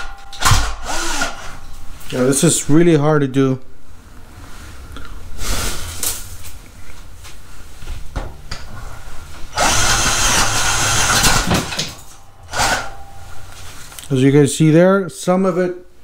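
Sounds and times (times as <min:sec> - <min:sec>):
drill boring into wood: 0:00.5 - 0:01.5, 0:09.6 - 0:11.5.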